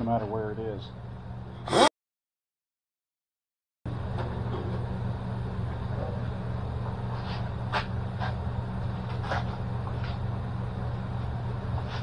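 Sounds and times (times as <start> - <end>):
shop machinery hum: 3.9 - 12.0.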